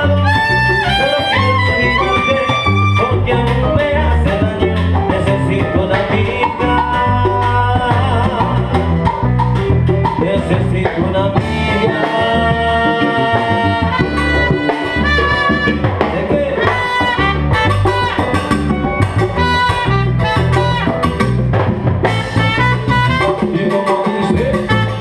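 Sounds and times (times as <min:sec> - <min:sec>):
person singing: 0:00.0 - 0:09.2, 0:10.0 - 0:17.4
congas: 0:00.0 - 0:25.0
live salsa band playing: 0:00.0 - 0:25.0.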